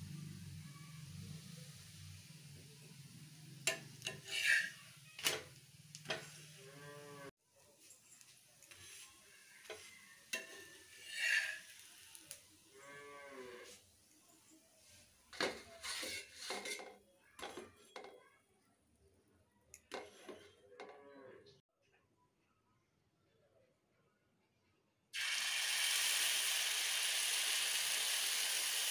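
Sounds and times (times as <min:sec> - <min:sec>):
spatula scraping iron griddle: 0:03.6 - 0:07.2, 0:07.8 - 0:12.4, 0:14.8 - 0:18.1, 0:19.9 - 0:21.0.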